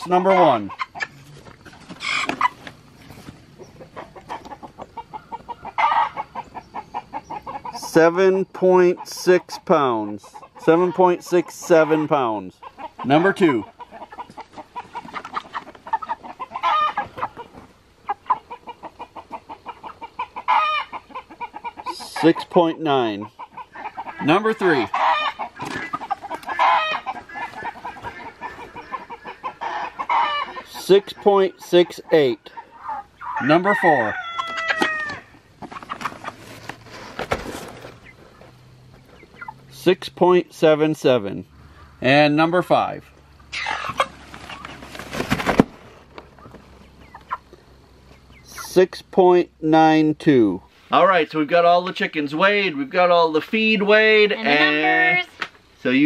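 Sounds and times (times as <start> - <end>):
chicken clucking: 0.0 - 49.0, 50.6 - 56.0
rustling: 35.6 - 39.4, 43.8 - 46.8.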